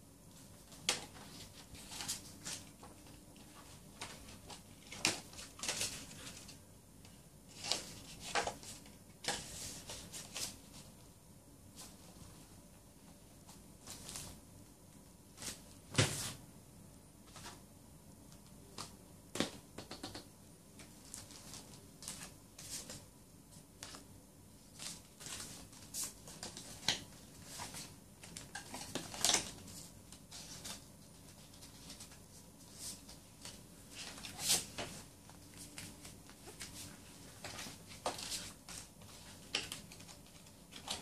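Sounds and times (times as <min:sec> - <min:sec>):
paper rustling and crinkling: 0:00.4 - 0:06.6, 0:07.5 - 0:10.9, 0:20.8 - 0:23.0, 0:23.8 - 0:41.0.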